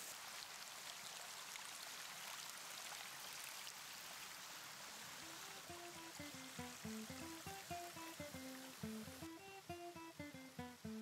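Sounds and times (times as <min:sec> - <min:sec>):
waterfall pouring into pool: 0:00.0 - 0:11.0
plucked acoustic guitar: 0:05.2 - 0:11.0.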